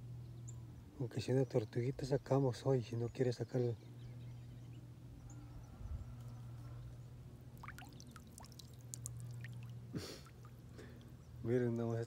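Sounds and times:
low hum: 3.8 - 11.4
water dripping and trickling: 7.5 - 11.2.

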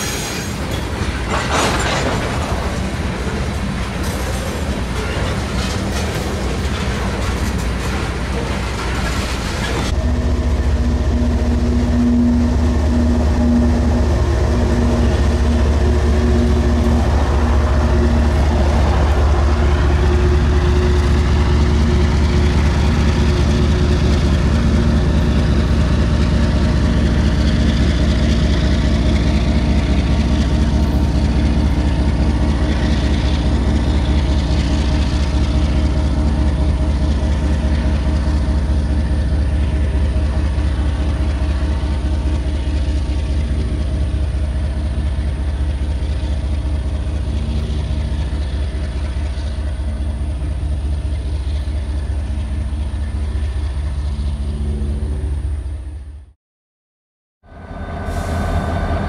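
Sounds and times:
diesel locomotive engine hum: 0.0 - 56.4, 57.4 - 59.0
steady tone: 57.4 - 59.0.

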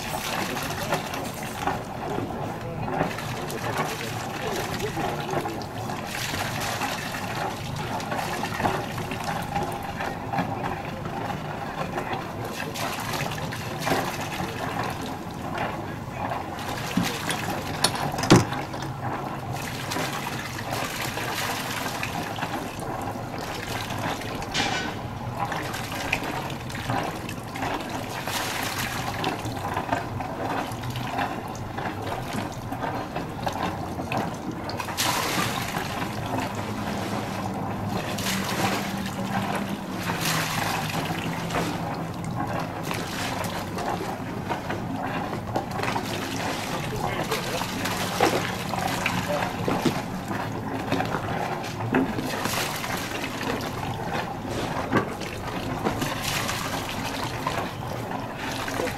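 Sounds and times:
water lapping against hulls: 0.0 - 58.9.

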